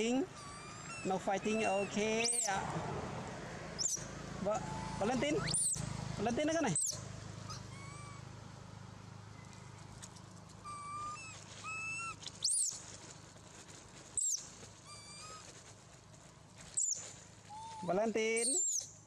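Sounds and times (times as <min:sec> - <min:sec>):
macaque squeals: 0:00.2 - 0:02.6, 0:03.8 - 0:05.8, 0:06.7 - 0:08.3, 0:10.6 - 0:12.8, 0:14.2 - 0:15.5, 0:16.8 - 0:18.9
macaques whistle-like calls: 0:00.4 - 0:02.5, 0:03.8 - 0:05.8, 0:06.7 - 0:08.3, 0:10.6 - 0:12.8, 0:16.8 - 0:18.9.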